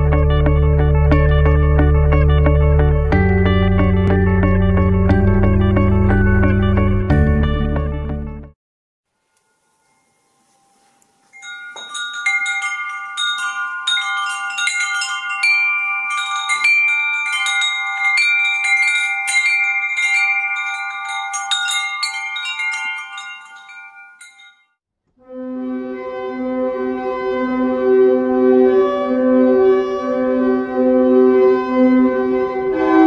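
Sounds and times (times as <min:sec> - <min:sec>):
metal chimes ringing: 0:09.4 - 0:24.8.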